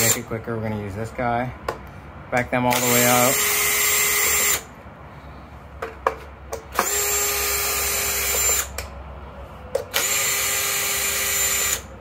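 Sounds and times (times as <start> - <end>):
drill bit clicks: 2.7 - 3.6
cordless drill motor running: 2.7 - 4.7, 6.7 - 8.7, 9.9 - 11.9.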